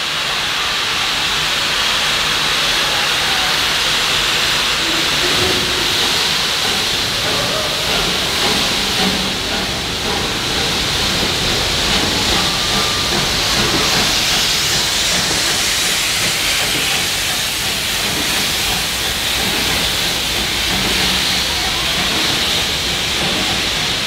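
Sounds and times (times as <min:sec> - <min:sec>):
steam hissing: 0:00.0 - 0:24.0.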